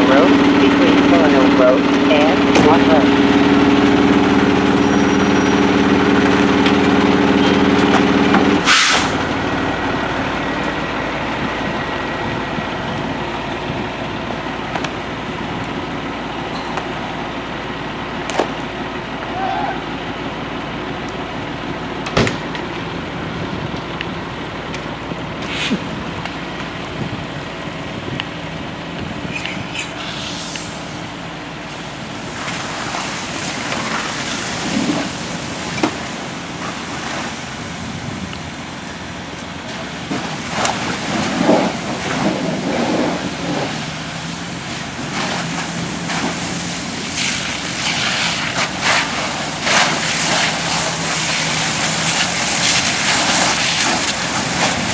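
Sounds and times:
engine running: 0.0 - 54.9
hiss of water and flames: 8.6 - 9.2, 29.0 - 54.9.

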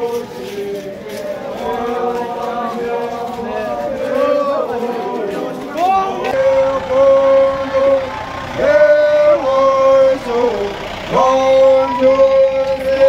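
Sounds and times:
voices chanting long notes: 0.0 - 13.0.

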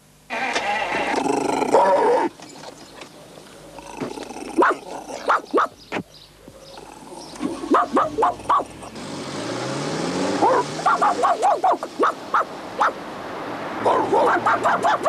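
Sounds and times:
dog yelping and barking: 1.7 - 2.3, 4.6 - 5.8, 7.4 - 9.0, 10.4 - 13.0, 13.8 - 15.0
car engine revving: 6.7 - 14.7.

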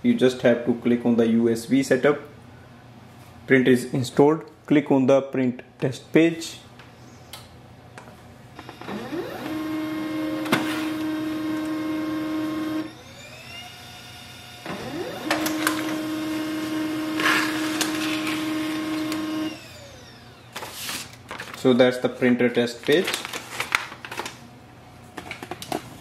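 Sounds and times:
laser printer motors whining: 8.6 - 20.6.

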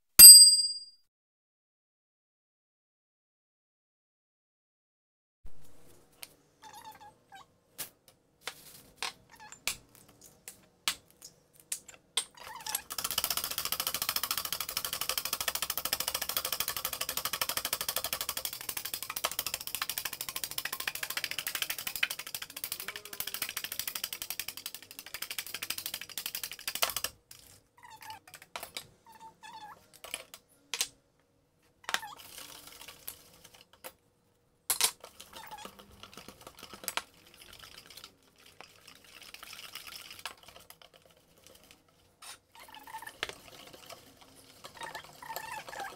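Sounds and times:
whisk beating in metal bowl: 12.9 - 27.1, 35.1 - 45.9.

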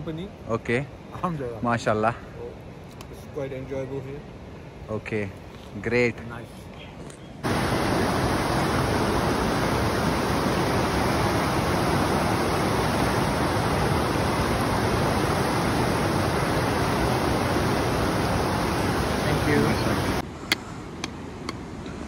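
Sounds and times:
stream rushing over boulders: 7.4 - 20.3.

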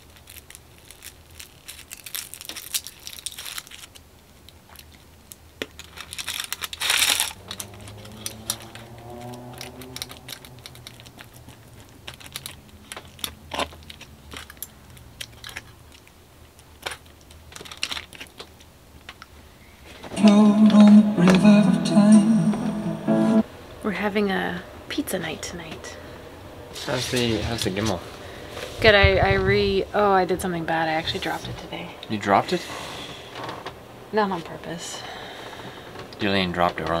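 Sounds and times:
foil crinkling: 0.0 - 19.1.

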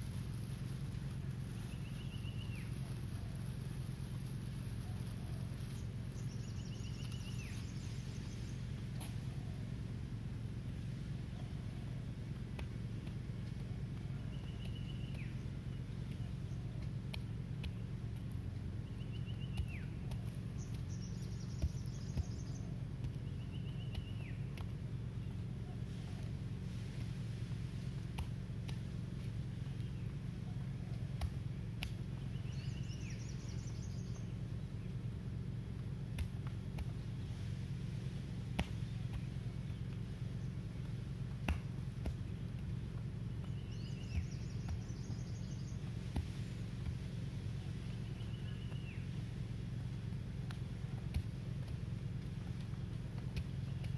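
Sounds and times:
steady low hum: 0.0 - 53.9
sharp taps: 12.3 - 25.4, 28.0 - 34.3, 34.9 - 37.2, 38.4 - 47.1.

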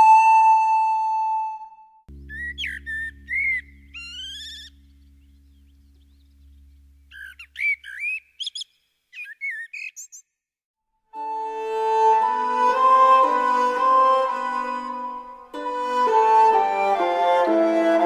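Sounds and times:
flute-like musical note: 0.0 - 3.7, 11.2 - 18.0
low held drone: 2.1 - 7.2
bird chirps and whistled trills: 2.2 - 10.4.

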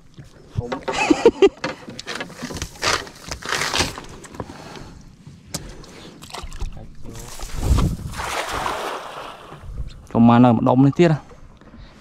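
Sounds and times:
water dripping and splashing: 6.2 - 7.5, 8.1 - 9.6
wet net rustling: 7.2 - 9.5.

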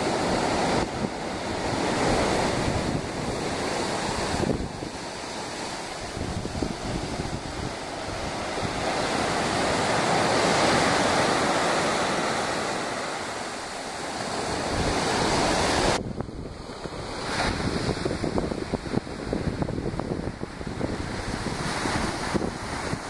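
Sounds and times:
surf breaking on beach: 0.0 - 23.0
wind buffeting microphone: 0.0 - 23.0.

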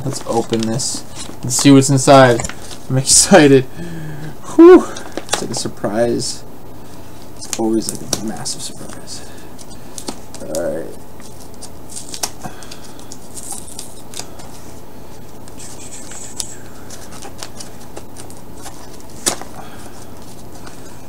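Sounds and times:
paper rustling: 0.0 - 3.2, 6.8 - 21.0
low room hum: 0.0 - 21.0.

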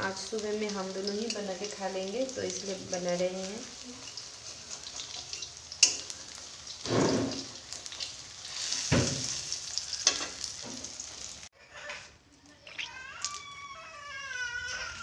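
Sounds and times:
food sizzling in hot oil: 0.0 - 11.5.

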